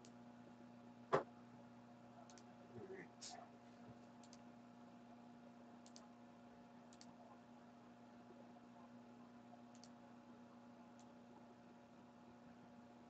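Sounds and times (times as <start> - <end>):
faint electrical hum: 0.0 - 13.0
computer mouse double clicks: 9.7 - 9.9.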